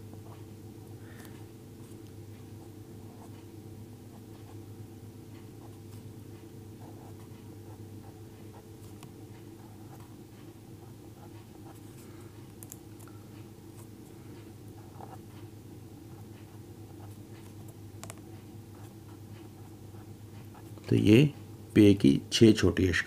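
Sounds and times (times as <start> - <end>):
steady low hum: 0.0 - 23.0
pen scratching on paper: 6.8 - 9.0, 14.8 - 15.2.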